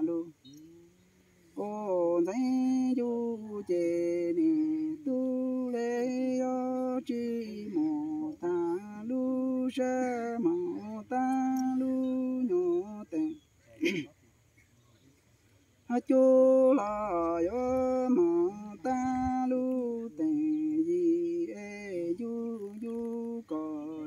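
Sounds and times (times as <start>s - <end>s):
person chanting sung poetry: 0.0s - 13.4s, 15.9s - 24.0s.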